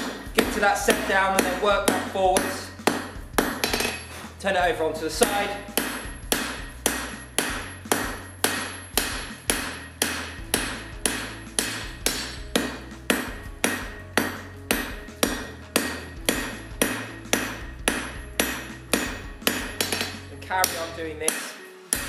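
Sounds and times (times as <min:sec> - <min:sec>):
hammer striking steel on anvil: 0:00.0 - 0:22.0.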